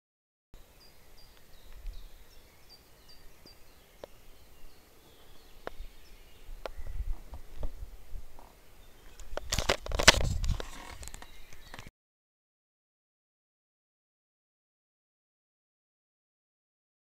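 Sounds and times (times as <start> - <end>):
birds chirping: 0.6 - 11.9
sharp cracks: 9.3 - 11.9.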